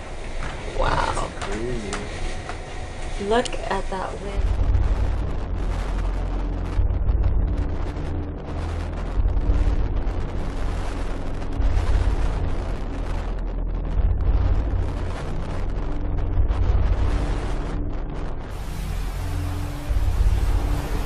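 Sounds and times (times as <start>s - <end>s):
storm wind buffeting microphone: 0.0s - 21.0s
rough sea rushing: 18.5s - 21.0s.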